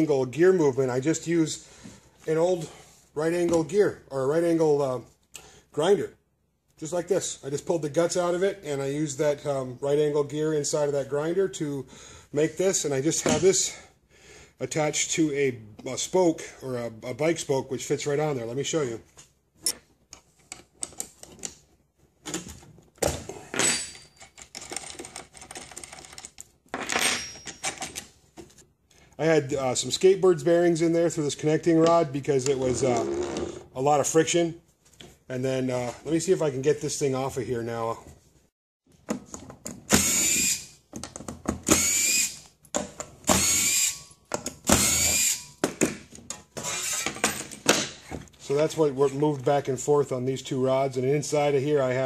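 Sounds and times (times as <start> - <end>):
loose parts clicking and clattering: 19.6 - 28.6
cordless drill whine: 40.0 - 40.6, 41.8 - 42.4, 43.3 - 44.0, 44.8 - 45.4.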